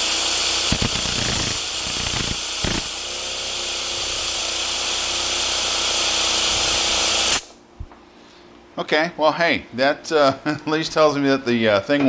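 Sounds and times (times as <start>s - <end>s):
small engine humming: 0.0s - 7.4s
compressed air hissing: 0.0s - 7.6s.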